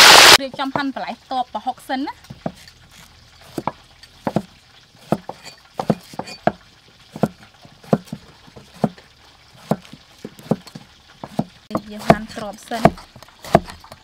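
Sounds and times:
knives chopping on wooden blocks: 3.5s - 9.0s, 9.6s - 14.0s.

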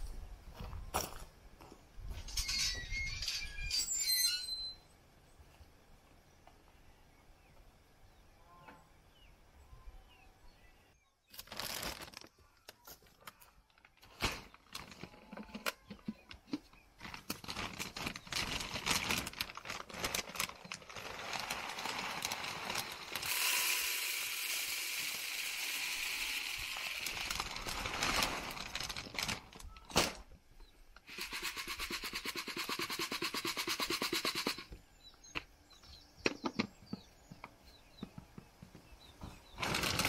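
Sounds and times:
plastic sack rustling: 11.3s - 12.4s, 13.6s - 15.6s, 17.0s - 23.4s, 26.7s - 30.3s, 39.6s - 40.0s
feed pouring into plastic feeder: 17.4s - 29.3s.

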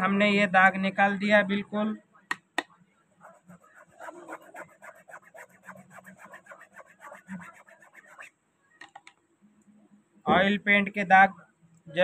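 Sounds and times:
toothbrush scrubbing fabric: 3.2s - 8.3s.

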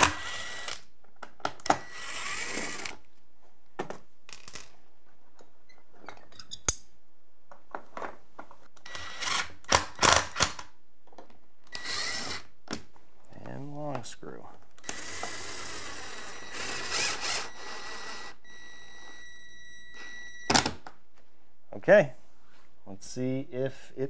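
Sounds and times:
power drill driving screws: 0.0s - 0.8s, 1.7s - 3.0s, 8.8s - 10.6s, 11.7s - 12.5s, 14.8s - 18.4s.

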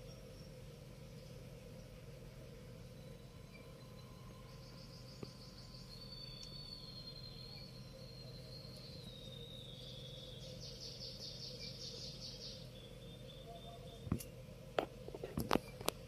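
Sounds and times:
steady high-pitched tone: 1.6s - 11.8s.

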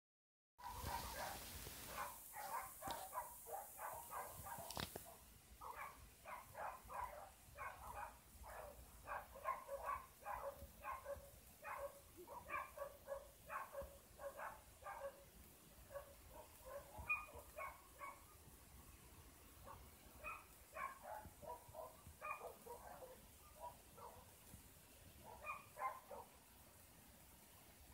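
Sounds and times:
faint dog barking: 0.6s - 18.5s, 19.6s - 26.5s.

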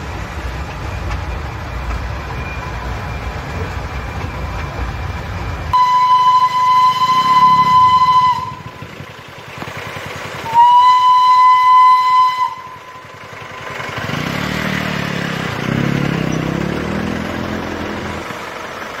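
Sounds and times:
motor vehicle engine running: 0.0s - 19.0s
steam locomotive whistle: 5.7s - 9.1s, 10.4s - 13.6s.

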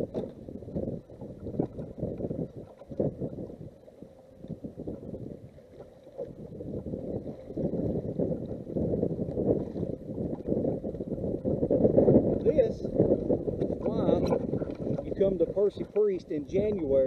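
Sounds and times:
water lapping at hull: 0.0s - 17.0s
wind gusting over microphone: 0.0s - 17.0s.

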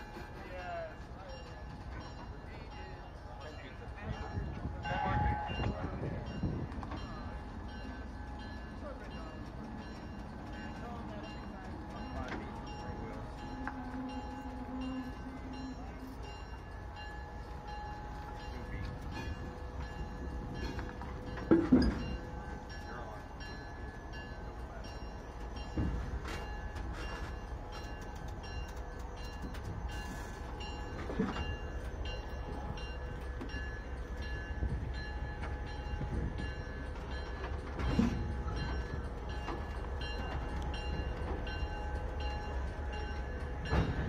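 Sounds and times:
diesel locomotive rumble: 0.0s - 44.0s.

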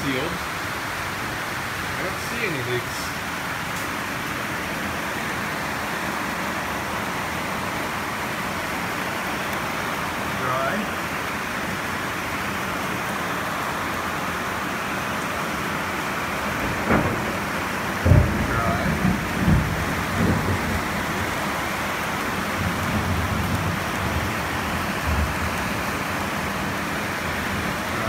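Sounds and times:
rain on a metal roof: 0.0s - 28.0s
low thumps and rumbles: 16.6s - 21.0s.

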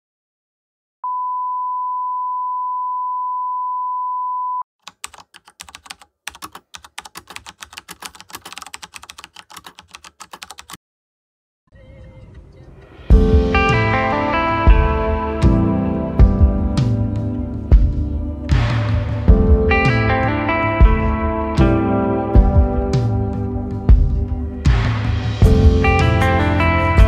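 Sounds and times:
high beep tone: 1.0s - 4.6s
keyboard typing clicks: 4.8s - 10.8s.

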